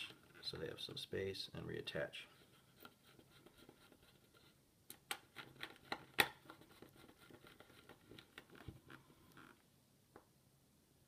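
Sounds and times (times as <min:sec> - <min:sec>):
plastic parts clicking and tapping: 0:04.9 - 0:06.8.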